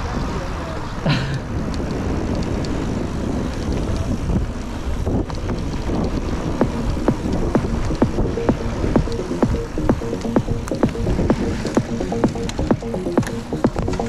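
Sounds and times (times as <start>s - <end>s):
bike tyre rumble on trail: 0.0s - 9.2s
wind buffeting microphone: 0.0s - 14.0s
bike clicks and rattles: 1.5s - 14.0s.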